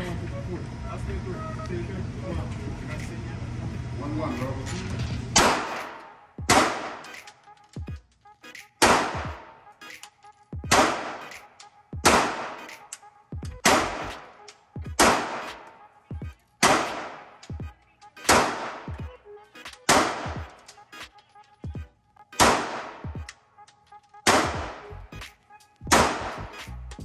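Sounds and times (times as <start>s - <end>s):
pistol shots echoing indoors: 5.4s - 7.2s, 8.8s - 9.5s, 10.7s - 12.7s, 13.6s - 14.3s, 15.0s - 15.8s, 16.6s - 17.5s, 18.2s - 18.9s, 19.9s - 20.7s, 22.4s - 23.0s, 24.2s - 24.8s, 25.9s - 26.4s.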